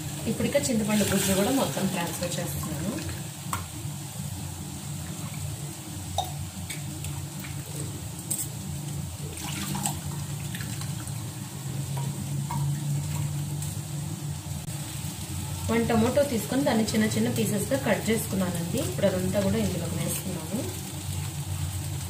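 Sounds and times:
steady low hum: 0:00.0 - 0:22.0
liquid splashing into pot: 0:09.3 - 0:11.3.

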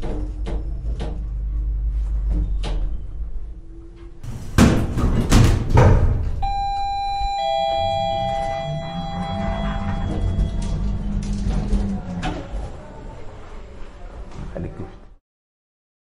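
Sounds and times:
heavy mechanical clanks and slams: 0:04.2 - 0:06.4, 0:08.6 - 0:12.8
electronic chime-like tone: 0:06.4 - 0:11.1
low rumble: 0:06.4 - 0:12.7.

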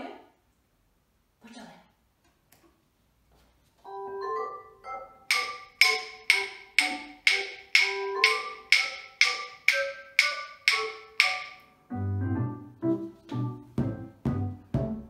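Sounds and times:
bright melodic music: 0:03.9 - 0:15.0
rhythm sticks clicking: 0:05.2 - 0:11.8.

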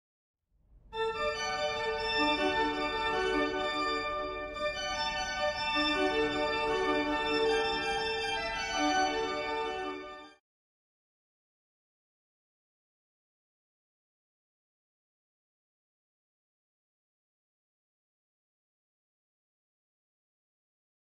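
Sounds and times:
organ playing slow chords: 0:01.2 - 0:10.2.

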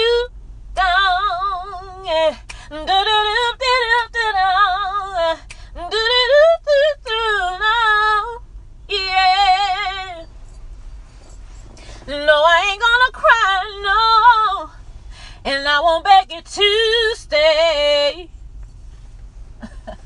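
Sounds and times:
woman singing a cappella: 0:00.0 - 0:10.3, 0:11.9 - 0:14.8, 0:15.4 - 0:18.3
low steady hum: 0:00.0 - 0:20.0
breaths: 0:11.3 - 0:12.1, 0:14.9 - 0:15.5.

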